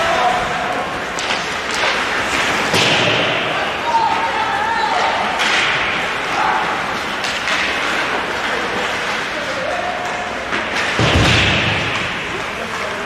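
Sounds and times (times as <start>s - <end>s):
players shouting: 0.0s - 1.2s, 1.9s - 7.3s
skates on ice: 0.0s - 13.0s.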